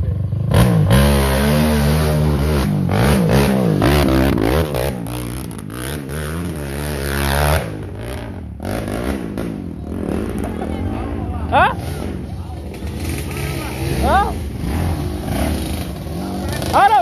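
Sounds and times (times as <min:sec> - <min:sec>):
dirt bike engine revving: 0:00.0 - 0:17.0.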